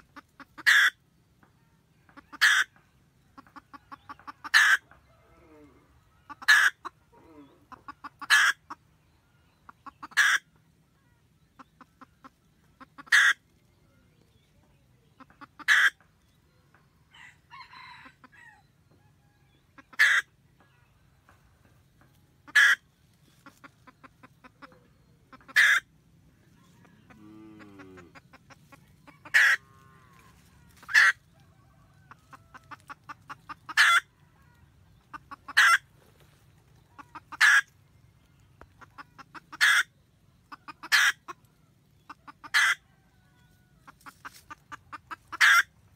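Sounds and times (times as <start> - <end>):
hen cackling: 0.0 - 1.0, 2.1 - 8.9, 9.6 - 10.6, 11.5 - 13.6, 15.2 - 16.1, 19.7 - 20.8, 22.4 - 37.8, 38.6 - 45.9.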